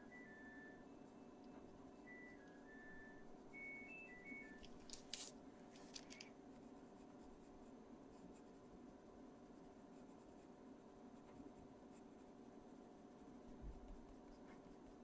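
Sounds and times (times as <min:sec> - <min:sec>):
washing machine beep tune: 0:00.0 - 0:04.6.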